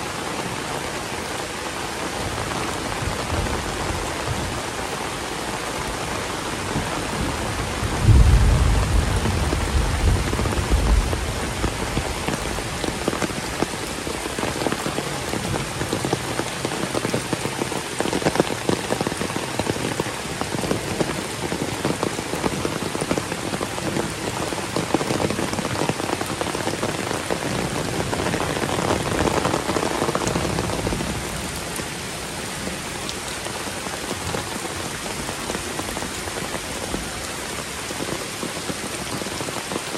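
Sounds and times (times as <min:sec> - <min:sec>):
heavy rain pouring: 0:00.0 - 0:39.9
thunder rumble: 0:07.1 - 0:13.2.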